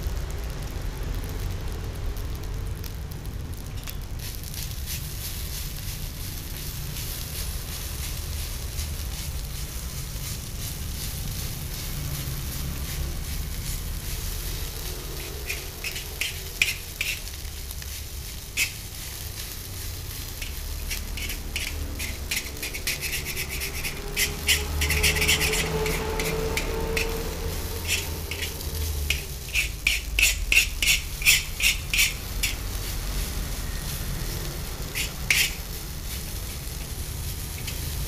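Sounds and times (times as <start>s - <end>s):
rice sizzling in a wok: 0.0s - 38.0s
metal utensil scraping a wok: 3.8s - 38.0s.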